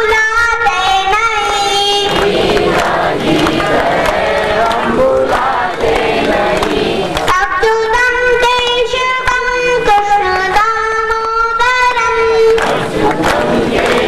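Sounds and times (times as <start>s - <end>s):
child singing into microphone: 0.0s - 14.0s
hand-clapping: 1.3s - 7.5s, 12.4s - 14.0s
congregation chanting: 1.9s - 7.3s, 12.5s - 14.0s.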